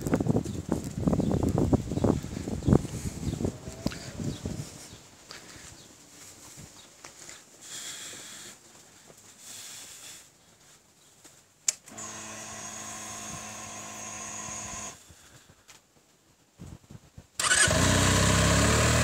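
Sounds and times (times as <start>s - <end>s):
fuel pump whine: 11.9s - 15.0s, 17.4s - 19.0s.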